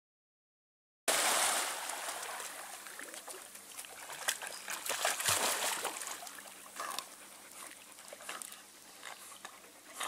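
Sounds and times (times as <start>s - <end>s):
big splash in pond water: 1.1s - 6.4s
dog wading and splashing: 1.9s - 10.0s.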